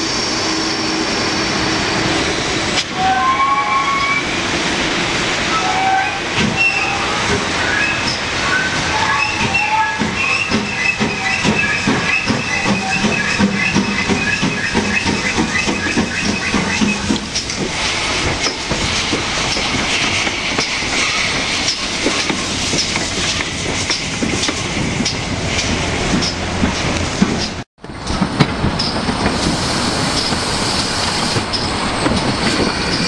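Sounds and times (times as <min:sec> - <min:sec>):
steam hissing: 0:00.0 - 0:27.6, 0:28.9 - 0:33.0
steam locomotive exhaust beating: 0:00.0 - 0:33.0
high wheel squeal: 0:00.2 - 0:04.3, 0:05.4 - 0:17.6
wheels clicking over rail joints: 0:09.9 - 0:33.0.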